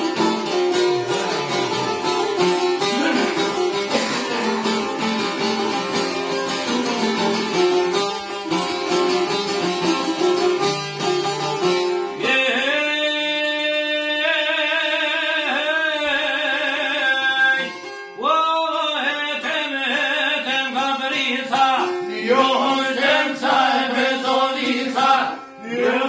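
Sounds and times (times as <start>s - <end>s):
plucked lutes: 0.0s - 13.1s, 19.3s - 26.0s
man singing: 12.2s - 23.5s.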